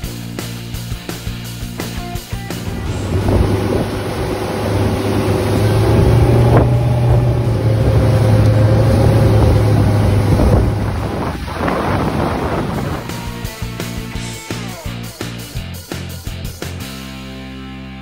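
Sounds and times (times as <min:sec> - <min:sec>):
motorboat engine drone: 0:00.0 - 0:17.0
water rushing and splashing: 0:02.4 - 0:14.9
wind buffeting microphone: 0:02.6 - 0:14.1.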